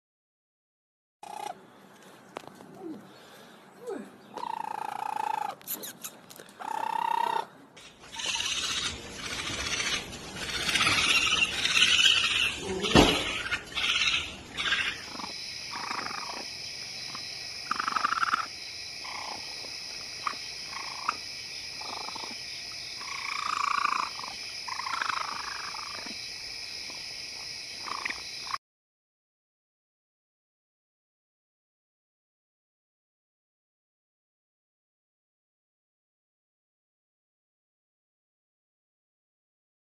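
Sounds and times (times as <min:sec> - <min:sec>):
raccoon calls: 0:01.2 - 0:01.6, 0:04.3 - 0:22.4, 0:23.0 - 0:26.2, 0:27.8 - 0:28.6.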